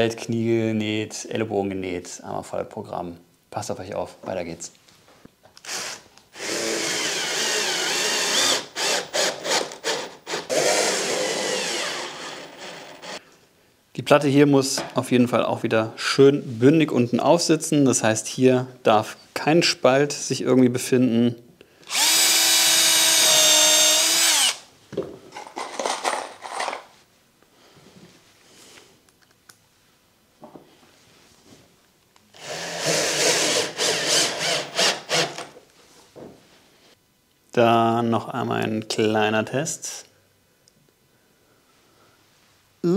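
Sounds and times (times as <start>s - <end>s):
cordless drill whining: 5.6s - 13.2s, 21.8s - 24.6s, 32.4s - 35.5s.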